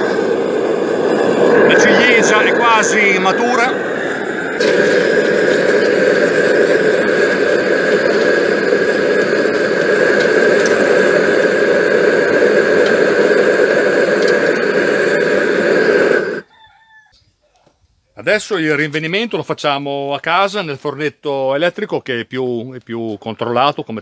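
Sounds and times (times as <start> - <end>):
gas torch rushing with whistle: 0.0 - 16.5.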